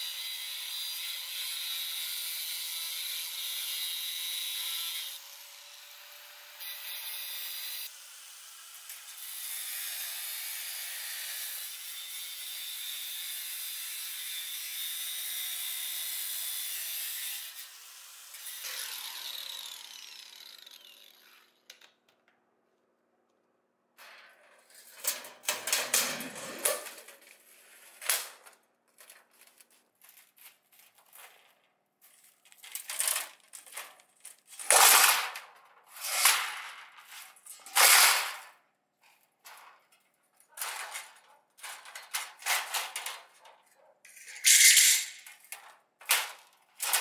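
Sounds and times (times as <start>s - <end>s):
tool grinding metal: 0.0s - 21.7s, 44.1s - 45.4s.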